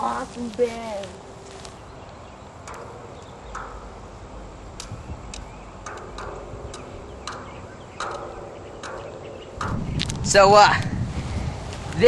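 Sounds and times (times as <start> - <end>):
footsteps crunching on dirt: 0.0 - 2.2
wind rumble on microphone: 0.0 - 12.0.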